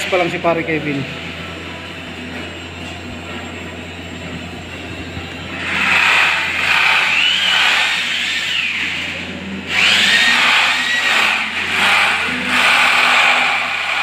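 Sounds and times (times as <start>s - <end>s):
electric drill boring holes: 5.6s - 14.0s.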